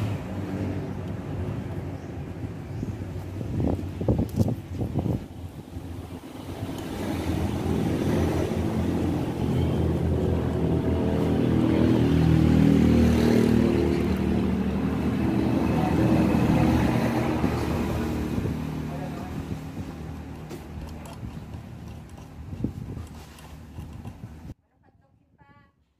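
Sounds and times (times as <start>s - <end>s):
vehicle engine running: 5.8s - 24.6s.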